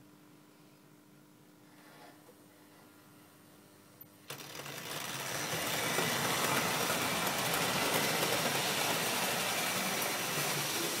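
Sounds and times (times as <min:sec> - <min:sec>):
faint clicks of wheels over rails: 0:04.3 - 0:11.0
model train running on metal track: 0:04.3 - 0:11.0.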